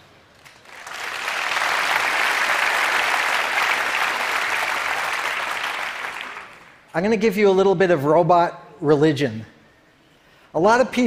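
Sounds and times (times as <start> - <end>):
audience applauding: 0.4 - 6.8.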